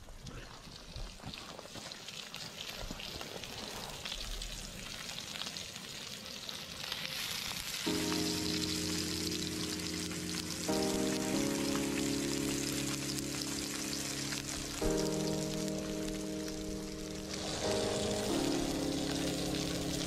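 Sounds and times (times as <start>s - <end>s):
fish sizzling in a pan: 0.7s - 20.0s
music chords: 7.9s - 20.0s.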